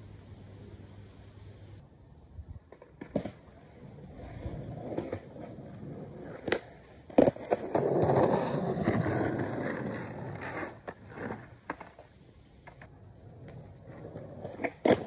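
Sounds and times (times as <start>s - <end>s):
skateboard wheels rolling: 2.6s - 15.0s
skateboard slapping: 2.7s - 15.0s
skateboard clacks: 6.2s - 15.0s.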